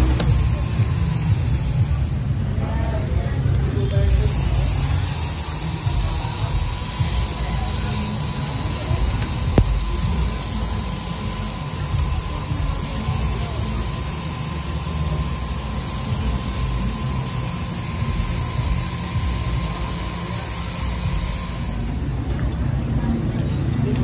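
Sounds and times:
engraving machine spindle whine: 0.0 - 2.6, 4.0 - 22.5.

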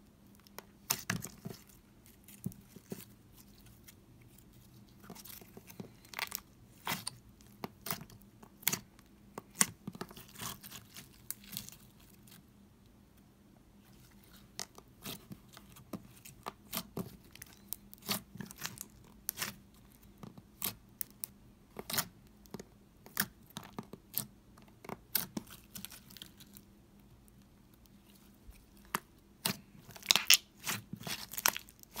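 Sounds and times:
slime popping and crackling: 29.4 - 32.0.

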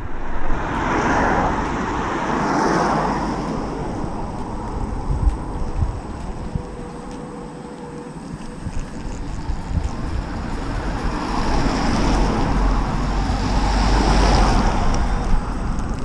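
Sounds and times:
car passing close by: 0.0 - 16.0
wind rushing over microphone: 0.0 - 16.0
tyres hissing on wet road: 0.3 - 16.0.

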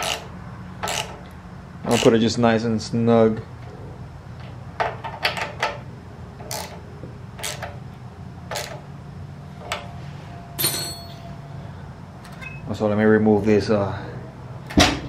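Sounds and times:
steady low hum: 0.0 - 15.0
ringing metal clink: 10.6 - 11.4.

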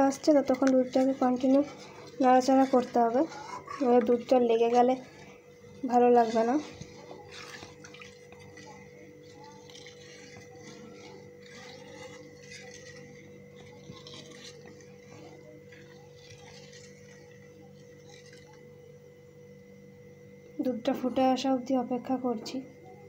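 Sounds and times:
faint hum: 0.0 - 23.0
spatula scraping metal pan: 0.1 - 17.3.

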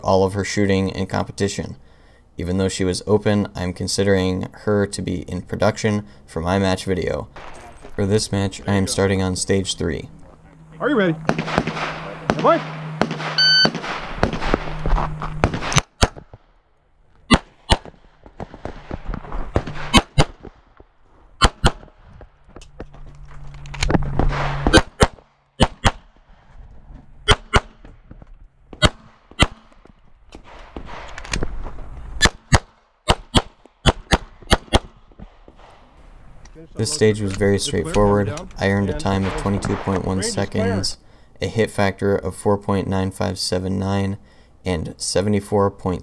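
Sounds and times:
pistol shots: 7.3 - 7.9, 11.2 - 16.4, 17.3 - 20.7, 21.4 - 22.0, 24.3 - 26.1, 27.3 - 27.9, 28.7 - 29.8, 32.2 - 35.8
shot timer beep: 13.4 - 13.8.

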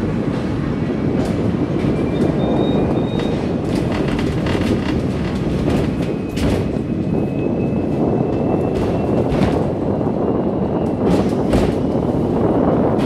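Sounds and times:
tram rumbling: 0.0 - 13.0
wheels knocking on rails: 1.1 - 6.9.

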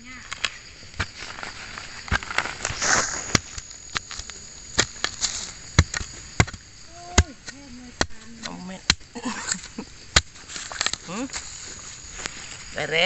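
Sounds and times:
digging tool striking soil: 2.0 - 9.1, 10.1 - 11.6.

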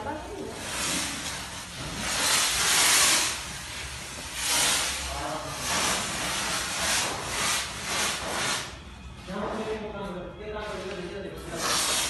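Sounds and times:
fogger spraying hiss: 0.6 - 8.6.

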